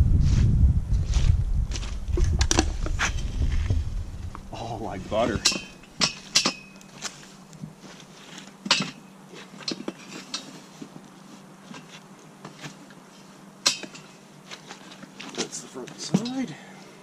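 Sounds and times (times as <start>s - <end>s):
metal clanks and clinks: 5.3s - 7.0s, 8.7s - 10.6s, 13.6s - 14.2s.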